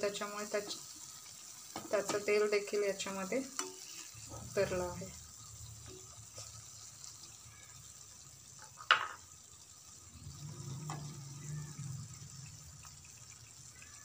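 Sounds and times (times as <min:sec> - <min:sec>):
spoon clinking against pan: 0:03.5 - 0:04.0.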